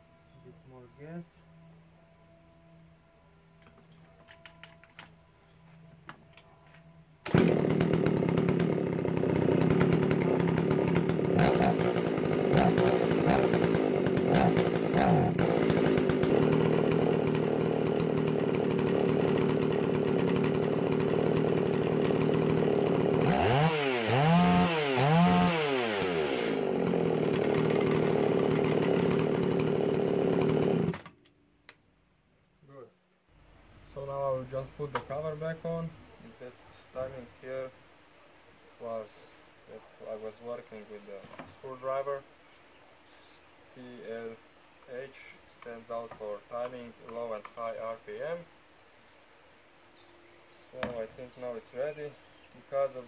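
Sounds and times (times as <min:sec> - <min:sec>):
chainsaw starting and idling: 0:07.2 - 0:31.4
chainsaw revving: 0:07.3 - 0:31.1.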